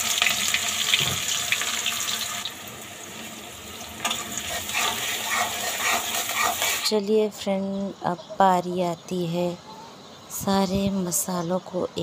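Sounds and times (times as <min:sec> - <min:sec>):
onions sizzling in hot oil: 0:00.0 - 0:06.9.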